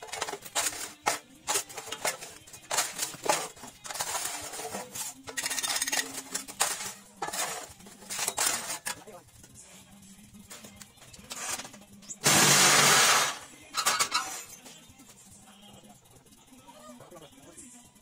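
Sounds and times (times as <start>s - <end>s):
metal scoop scraping concrete mix: 0.0s - 9.0s, 11.3s - 14.6s.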